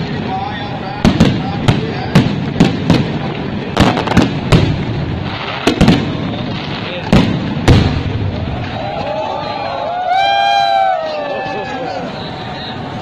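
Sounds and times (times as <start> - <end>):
firework shells bursting: 1.0 - 8.8.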